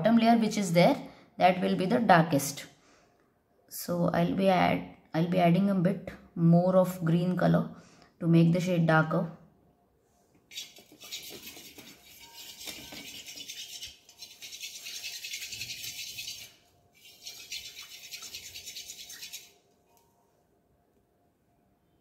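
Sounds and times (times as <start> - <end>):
shaker-like rattling: 10.5 - 19.6.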